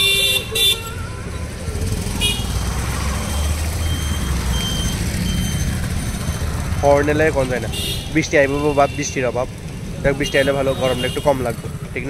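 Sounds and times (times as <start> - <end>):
car horn toot: 0.0 - 1.2, 2.2 - 2.5, 7.7 - 9.2, 10.2 - 11.5
rumble of passing vehicles: 0.0 - 12.0.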